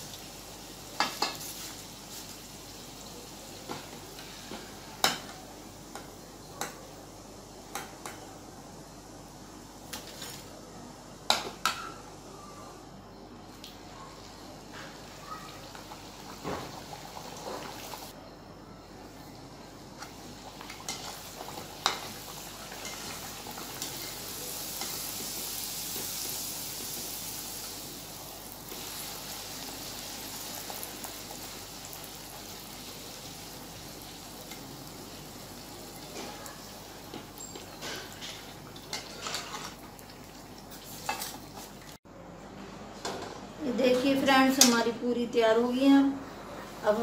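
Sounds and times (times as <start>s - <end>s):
deep-frying sizzle in hot oil: 0.0s - 10.6s, 14.9s - 18.2s, 19.2s - 42.0s.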